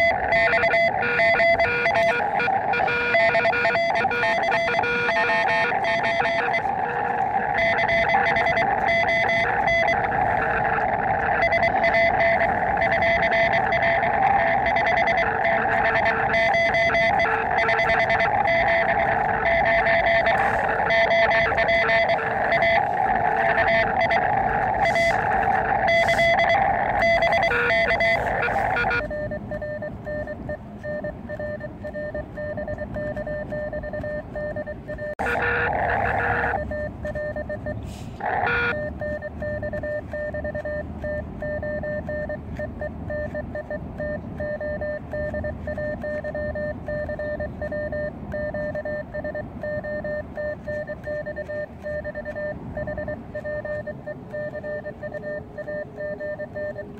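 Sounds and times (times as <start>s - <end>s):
short bursts of noise: 0.0s - 29.0s
morse code tones: 0.0s - 56.9s
radio band noise: 0.0s - 56.9s.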